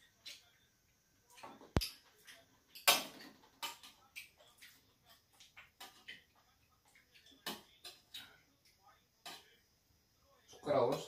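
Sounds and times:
eating clicks and smacks: 0:01.3 - 0:09.4.

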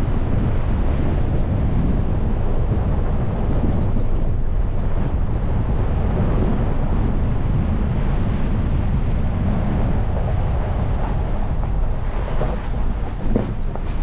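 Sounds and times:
vehicle driving on gravel: 0:09.4 - 0:14.0.

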